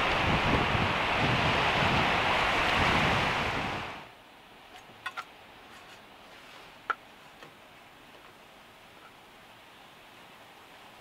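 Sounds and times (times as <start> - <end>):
wind buffeting microphone: 0.0 - 4.1.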